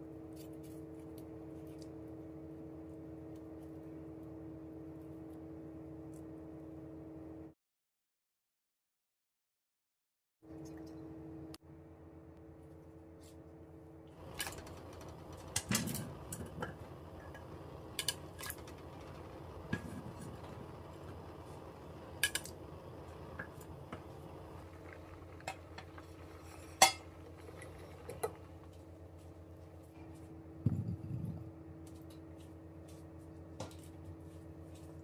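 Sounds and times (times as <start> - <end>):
steady low hum: 0.0 - 7.6, 10.5 - 35.0
metal pots and utensils clinking: 25.4 - 28.4.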